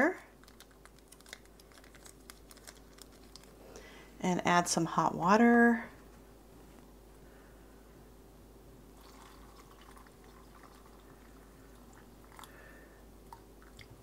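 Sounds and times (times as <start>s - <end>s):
water pouring into bowl: 9.0s - 13.9s
small drips and ticks: 9.0s - 14.0s.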